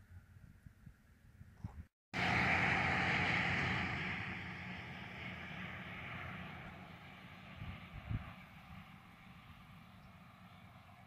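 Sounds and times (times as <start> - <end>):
passing vehicle road noise: 2.2 - 11.0.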